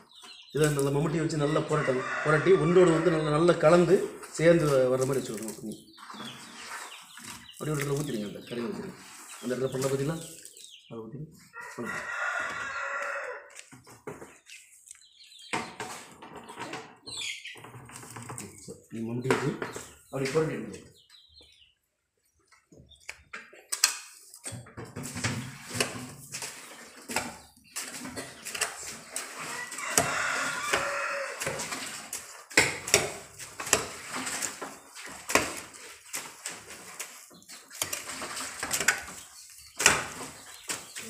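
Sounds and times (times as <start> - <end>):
blades scraping on concrete: 2.0 - 10.8, 11.9 - 13.7, 25.0 - 41.0
hoes chopping wet dung: 25.8 - 41.0.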